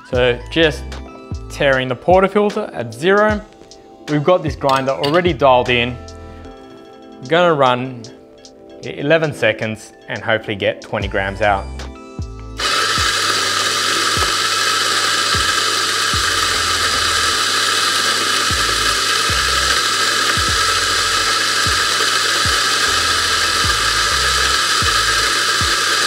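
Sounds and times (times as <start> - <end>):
coffee grinder grinding whir: 12.6 - 26.0.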